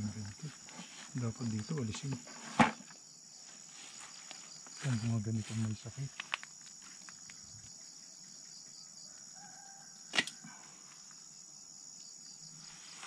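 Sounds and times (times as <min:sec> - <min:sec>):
sharp click: 0:10.1 - 0:10.4.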